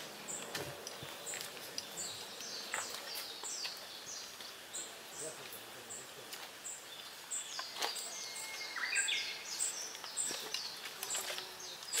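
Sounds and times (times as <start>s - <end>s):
small songbirds calling: 0.0s - 12.0s.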